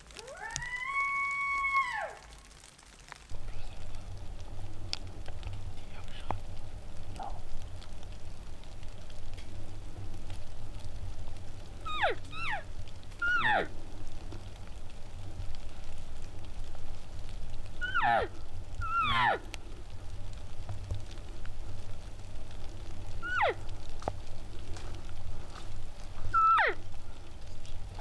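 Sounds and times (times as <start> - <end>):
elk calling: 11.8 - 13.8, 17.7 - 19.7, 23.1 - 23.9, 26.2 - 27.2.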